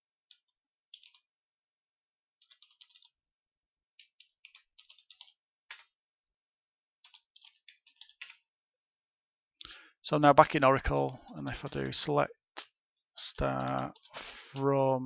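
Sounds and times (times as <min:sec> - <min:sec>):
keyboard typing: 0:00.2 - 0:01.3, 0:02.4 - 0:03.2, 0:04.0 - 0:06.0, 0:07.0 - 0:08.5, 0:13.4 - 0:14.7.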